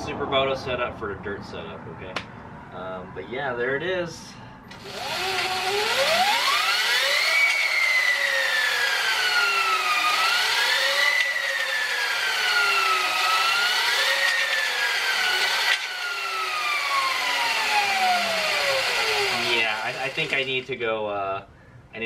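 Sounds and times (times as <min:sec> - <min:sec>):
chain whirr: 0:04.7 - 0:20.5
electric motor whine: 0:04.8 - 0:20.7.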